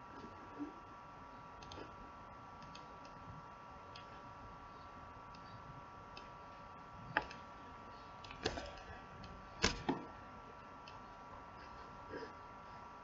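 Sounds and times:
faint electronic whine: 0.0s - 13.0s
computer mouse clicks: 1.6s - 1.9s, 2.6s - 3.2s, 3.9s - 4.1s.

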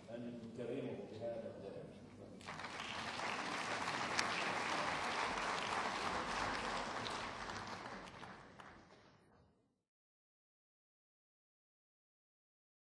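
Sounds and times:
audience applause: 2.4s - 9.2s.

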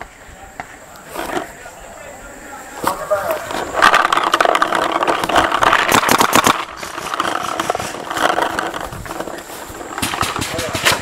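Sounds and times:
gear rattling: 2.8s - 11.0s
quick footsteps on grass: 6.7s - 11.0s.

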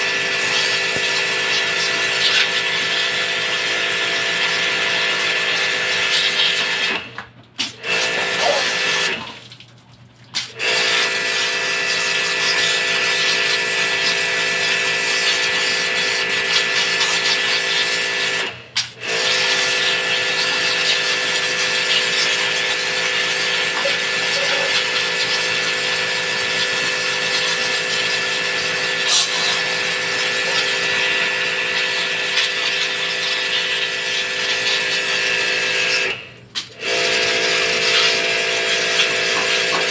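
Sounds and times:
pressure washer spraying water: 0.0s - 6.8s, 19.2s - 36.0s, 36.9s - 39.9s.

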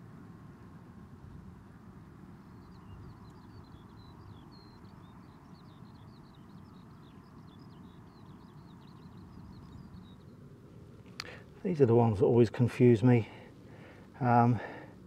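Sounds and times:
wind rumble on microphone: 0.0s - 10.4s
songbird singing: 0.0s - 15.0s.

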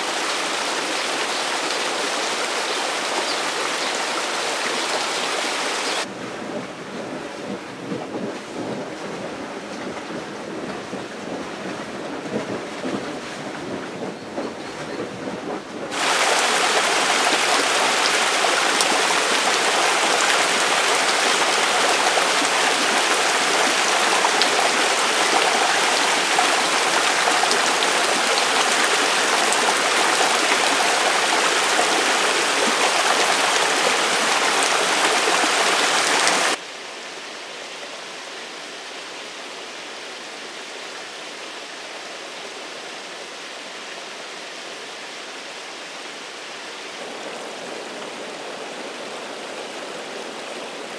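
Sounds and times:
water rushing over rock: 15.9s - 36.6s.

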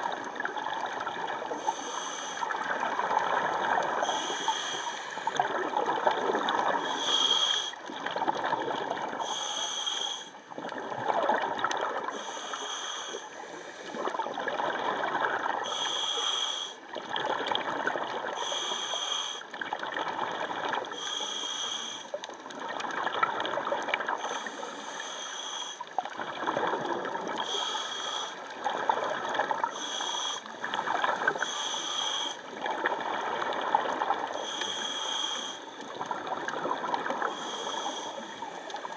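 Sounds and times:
gurgle of exhaled bubbles: 0.0s - 1.7s, 2.4s - 9.4s, 10.5s - 12.3s, 13.8s - 15.8s, 16.9s - 18.5s, 19.5s - 21.0s, 22.2s - 24.5s, 25.9s - 27.7s, 28.4s - 29.8s, 30.5s - 31.6s, 32.5s - 34.6s, 35.8s - 38.9s
hissing inhale through regulator: 1.4s - 3.0s, 3.7s - 5.5s, 6.5s - 8.1s, 9.1s - 10.5s, 12.0s - 14.2s, 15.6s - 17.0s, 18.3s - 19.6s, 20.8s - 22.5s, 24.1s - 26.1s, 27.3s - 28.7s, 29.6s - 32.6s, 33.8s - 36.0s, 36.7s - 38.9s.

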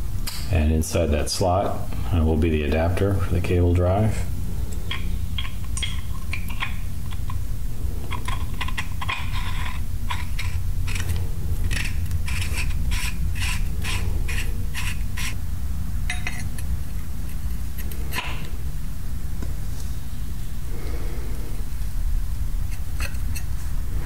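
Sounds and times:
steady low hum: 0.0s - 24.0s
metal parts clicking: 8.1s - 15.4s.

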